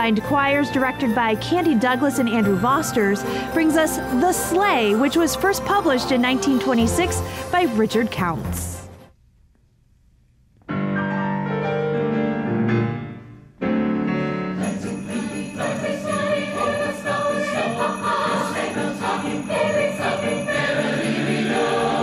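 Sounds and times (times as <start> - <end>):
sleigh bells jingling: 0.0 - 8.8, 14.6 - 22.0
piano: 10.6 - 22.0
choir singing: 14.6 - 22.0.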